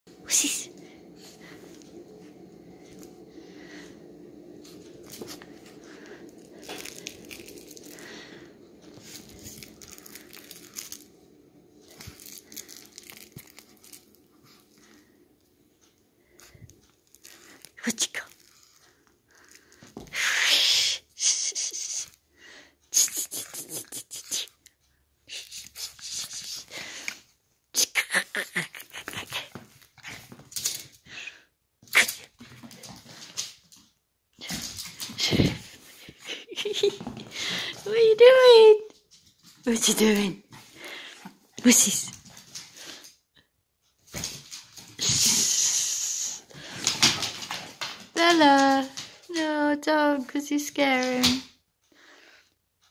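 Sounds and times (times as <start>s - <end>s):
small dog play noises: 0.3s - 15.2s, 22.9s - 43.2s
fabric rustling and crinkling: 4.8s - 11.1s, 11.7s - 15.2s.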